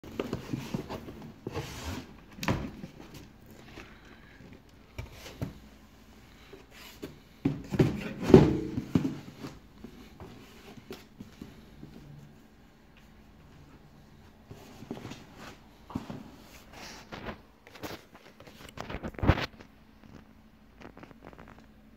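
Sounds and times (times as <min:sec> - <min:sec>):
cardboard scraping and knocking: 0:07.0 - 0:11.0.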